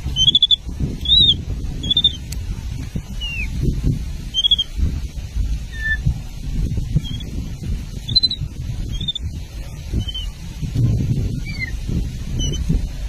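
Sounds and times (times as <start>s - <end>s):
low rumbling background: 0.0s - 13.0s
baby macaque chirping squeaks: 0.2s - 2.2s, 3.2s - 3.5s, 4.3s - 4.7s, 5.7s - 6.0s, 7.0s - 7.3s, 8.1s - 9.2s, 10.0s - 10.3s, 11.4s - 11.7s, 12.4s - 12.7s.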